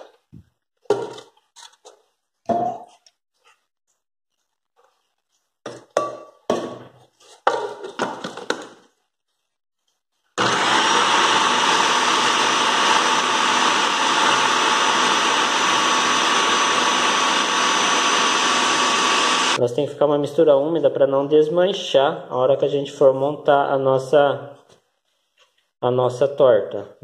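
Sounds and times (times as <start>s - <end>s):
food processor motor whine: 10.4s - 19.6s.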